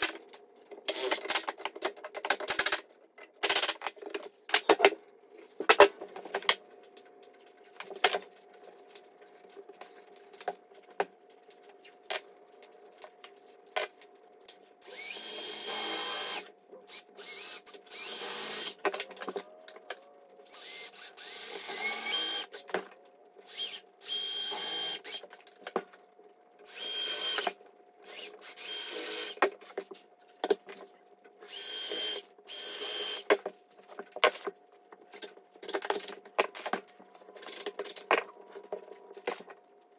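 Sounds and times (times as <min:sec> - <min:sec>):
cordless drill drilling into wood: 0:14.8 - 0:16.5, 0:17.2 - 0:18.8, 0:20.6 - 0:22.5, 0:26.7 - 0:29.4.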